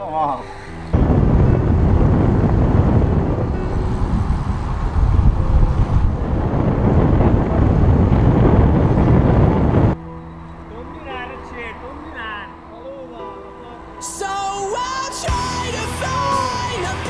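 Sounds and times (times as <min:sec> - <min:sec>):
wind buffeting microphone: 0:00.7 - 0:10.0.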